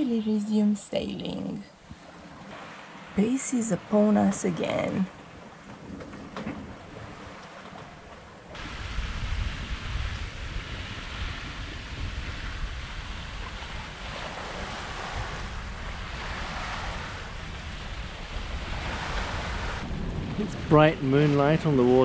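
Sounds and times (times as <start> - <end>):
water rushing along a hull: 0.0 - 22.0
wind buffeting microphone: 4.5 - 22.0.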